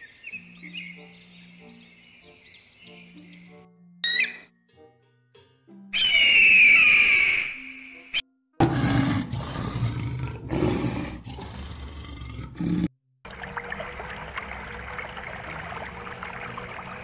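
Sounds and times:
lion roaring: 0:08.6 - 0:12.9
bubbling water: 0:13.2 - 0:17.0.

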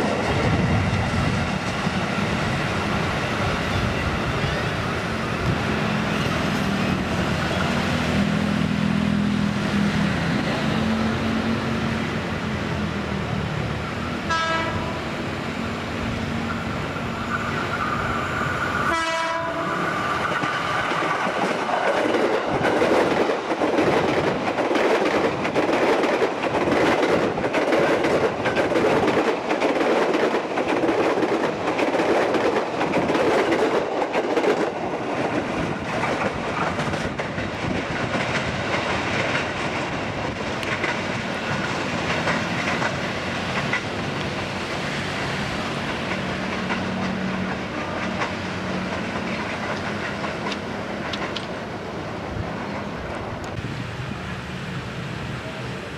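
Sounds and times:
electric train passing: 0:00.0 - 0:55.9
train horn: 0:14.2 - 0:15.2, 0:18.9 - 0:19.8.

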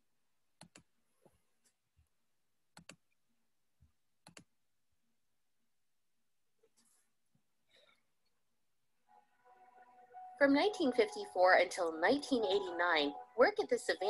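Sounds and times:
computer mouse double-clicks: 0:02.7 - 0:03.1, 0:04.2 - 0:04.5.

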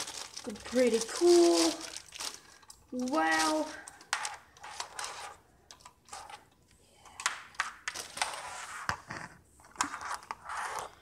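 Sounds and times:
packaging rustling: 0:00.0 - 0:06.5, 0:07.6 - 0:08.6.

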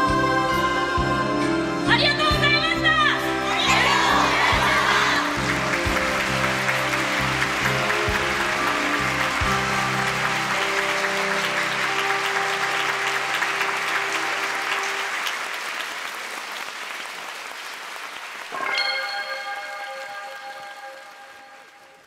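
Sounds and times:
closing music: 0:02.4 - 0:17.1
audience applauding: 0:03.4 - 0:22.0
ringing bell-like chord: 0:18.6 - 0:22.0.

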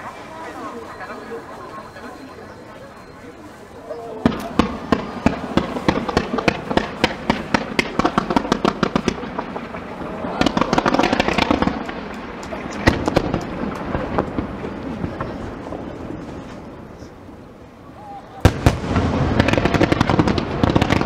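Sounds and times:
firework bursts: 0:00.0 - 0:21.0
firework crackling: 0:00.0 - 0:21.0
loud firework bang: 0:18.4 - 0:21.0.

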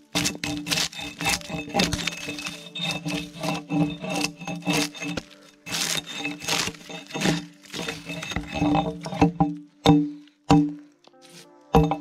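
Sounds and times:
scraping strokes on wood: 0:00.0 - 0:10.7
background music: 0:00.0 - 0:12.0.

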